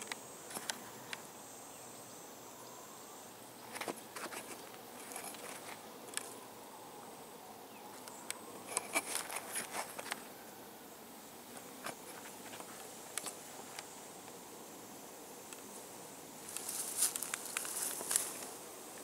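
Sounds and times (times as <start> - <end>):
faint insect buzz: 0.0 - 19.0
light crackles and clicks: 3.7 - 6.4, 11.5 - 14.4, 16.5 - 19.0.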